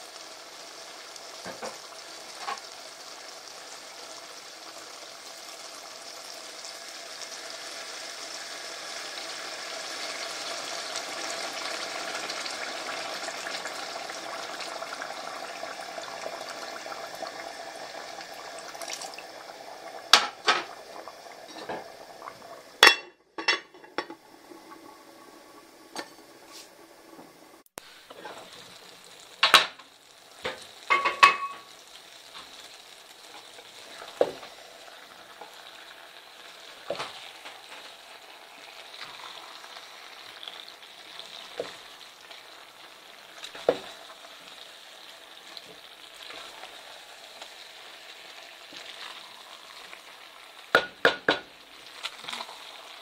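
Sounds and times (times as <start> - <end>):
steady sizzle: 0.0 - 53.0
spatula knocking against pot: 50.7 - 51.5.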